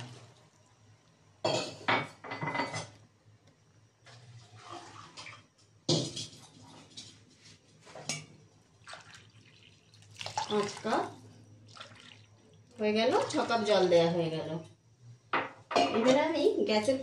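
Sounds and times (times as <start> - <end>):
water pouring into pan: 8.8 - 11.1, 11.7 - 12.5.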